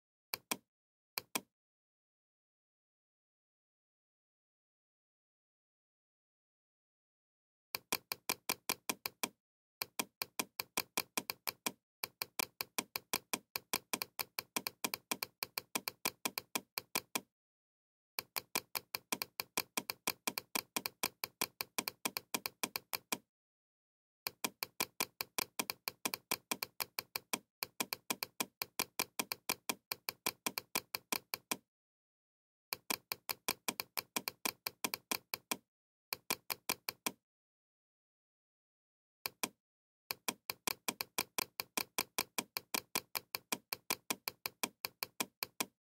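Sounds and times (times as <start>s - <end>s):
mouse button clicking rapidly: 0.4s - 0.6s, 1.2s - 1.5s, 7.8s - 17.3s, 18.2s - 23.3s, 24.3s - 31.6s, 32.7s - 35.6s, 36.2s - 37.2s, 39.3s - 45.8s.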